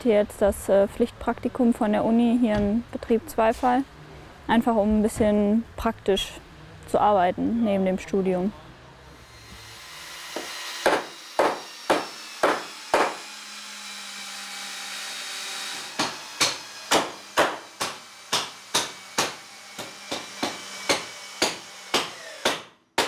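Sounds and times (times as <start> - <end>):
hammer blows on timber: 10.4 - 13.2, 16.0 - 23.0.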